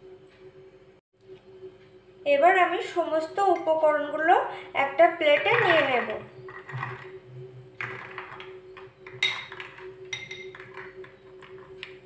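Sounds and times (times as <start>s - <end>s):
steady low hum: 0.0s - 12.0s
glass bowl clinking on plate: 9.1s - 11.0s.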